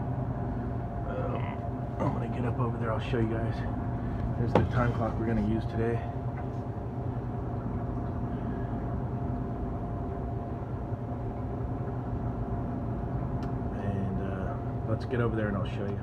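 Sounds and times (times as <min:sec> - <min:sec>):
refrigeration unit humming: 0:00.0 - 0:16.0.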